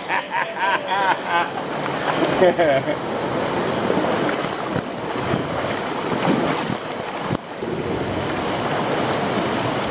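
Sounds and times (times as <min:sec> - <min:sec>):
water rushing over rapids: 0:00.0 - 0:09.9
kayak paddling: 0:01.1 - 0:09.9
wind buffeting microphone: 0:03.6 - 0:09.9.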